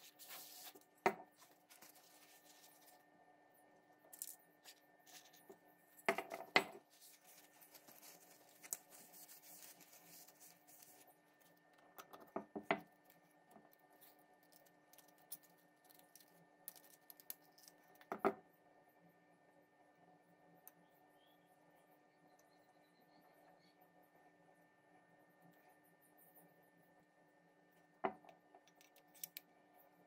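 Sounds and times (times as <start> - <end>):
faint handling noise: 0.0 - 3.1, 4.1 - 12.3.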